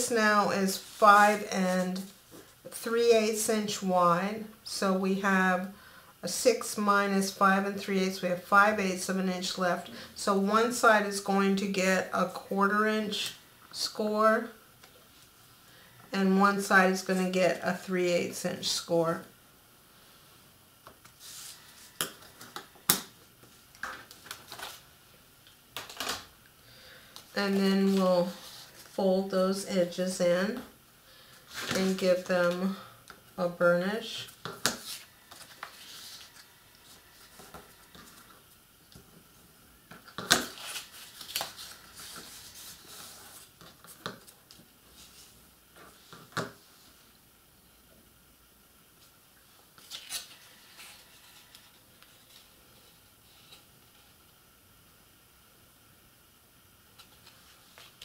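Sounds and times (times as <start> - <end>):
paper rustling and folding: 23.8 - 24.8, 34.6 - 38.3, 40.3 - 46.0.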